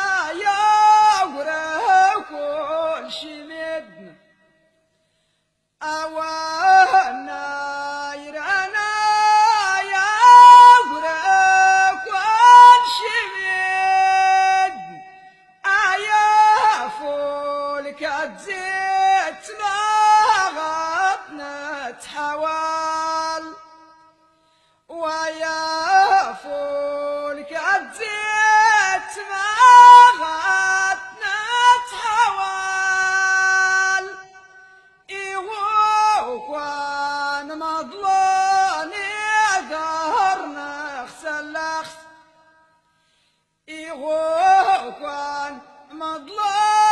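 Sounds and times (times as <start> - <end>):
person singing unaccompanied: 0.0 - 4.3, 5.8 - 23.8, 24.9 - 34.5, 35.1 - 42.2, 43.7 - 46.9.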